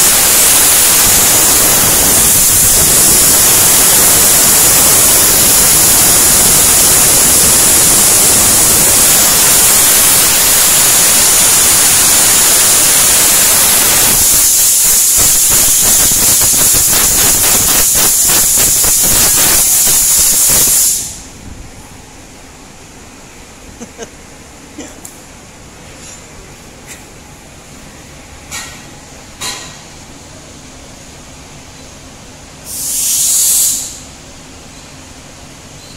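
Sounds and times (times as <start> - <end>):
compressed air hissing from hose: 0.0 - 21.3, 32.6 - 34.1.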